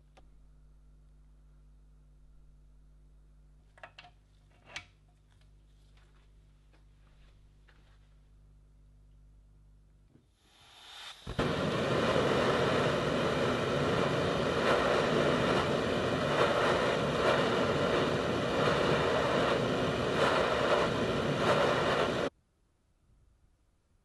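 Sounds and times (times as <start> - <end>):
blowtorch flame hissing: 10.4 - 22.3.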